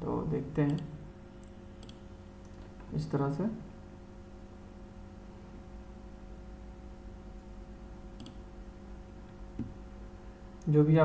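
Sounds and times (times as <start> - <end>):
low electrical hum: 0.0 - 11.0
computer mouse click: 0.7 - 2.7, 8.2 - 8.4.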